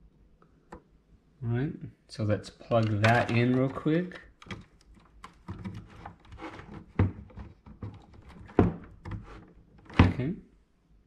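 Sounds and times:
cables clicking and rustling: 2.6 - 10.0.

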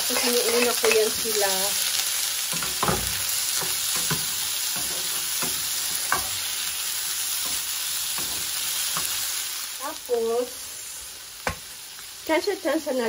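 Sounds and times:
vegetables sizzling in a frying pan: 0.0 - 13.0
spatula scraping a pan: 2.5 - 9.3.

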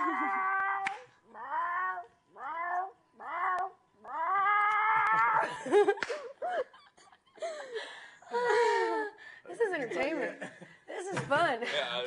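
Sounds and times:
person imitating cat yowling: 0.0 - 5.5.

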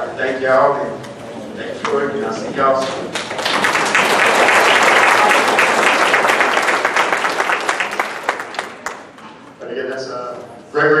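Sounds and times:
audience applauding: 3.1 - 9.3.

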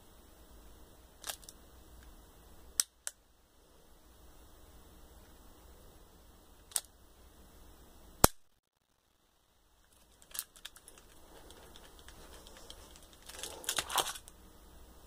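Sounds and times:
toy cap gun crack: 1.2 - 1.6, 2.8 - 3.2, 6.7 - 6.9, 8.2 - 8.4.

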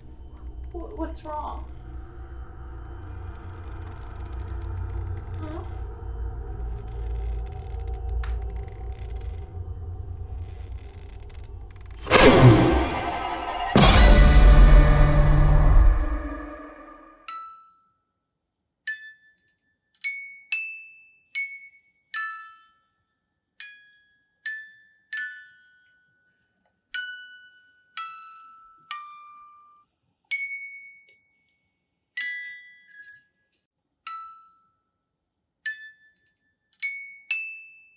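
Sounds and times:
music box melody: 20.0 - 31.5, 32.2 - 33.3, 34.0 - 35.0, 35.6 - 37.9.

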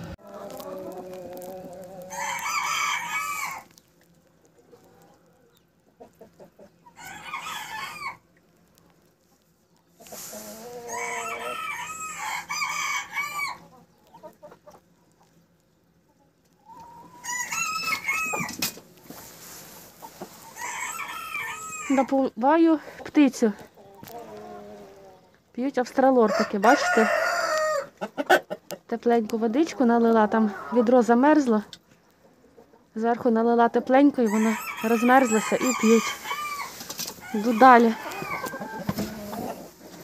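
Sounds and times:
chickens calling: 0.0 - 22.2, 22.8 - 25.4, 26.0 - 40.0
rooster crowing: 2.0 - 3.7, 7.0 - 8.2, 10.7 - 13.6, 17.1 - 18.5, 20.6 - 22.0, 26.3 - 27.9, 34.3 - 39.3.

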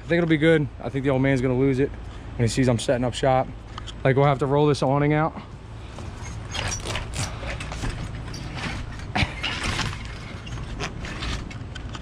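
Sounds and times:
awning being pulled open: 6.0 - 12.0
metal arms clattering: 6.0 - 12.0.

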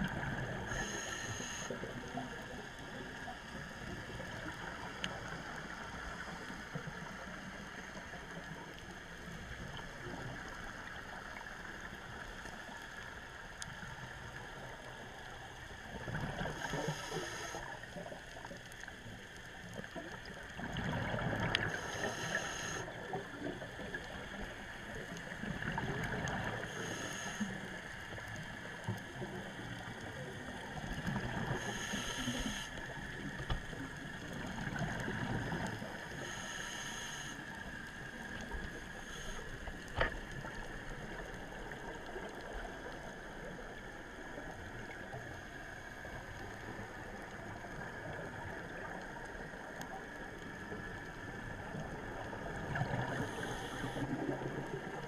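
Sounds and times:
diver breathing through regulator: 0.6 - 1.9, 16.5 - 17.7, 21.5 - 23.0, 26.6 - 27.7, 31.5 - 32.8, 36.1 - 37.6, 38.9 - 40.0, 53.0 - 54.4.

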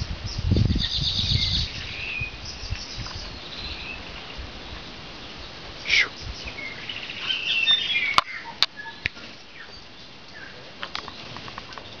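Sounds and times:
bird soft calls: 0.3 - 12.0
bird chirping and whistling: 0.7 - 4.0, 5.9 - 9.8.

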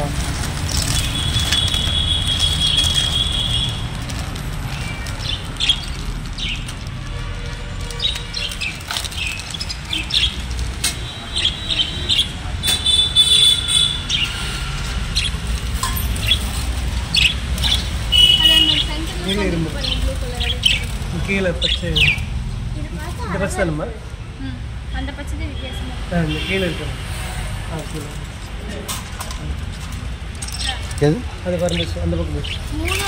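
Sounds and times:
parakeets chirping: 0.0 - 22.5, 30.4 - 33.0.

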